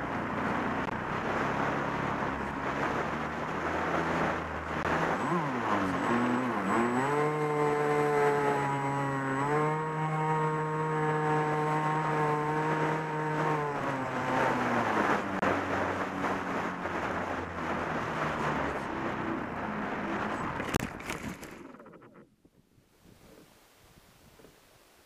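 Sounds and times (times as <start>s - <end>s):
wind rushing over microphone: 0.0s - 24.6s
model airplane motor whine: 4.2s - 15.7s.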